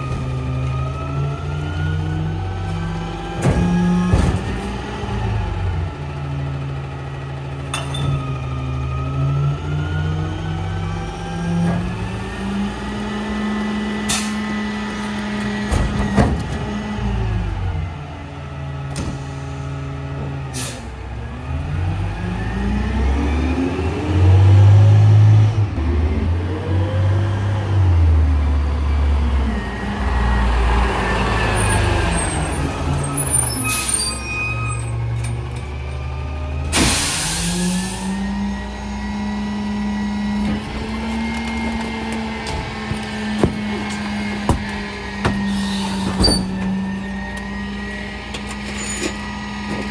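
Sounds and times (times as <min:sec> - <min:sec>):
diesel engine revving: 0:00.0 - 0:49.9
air brake hiss: 0:20.5 - 0:20.9, 0:36.7 - 0:38.0, 0:45.5 - 0:46.2.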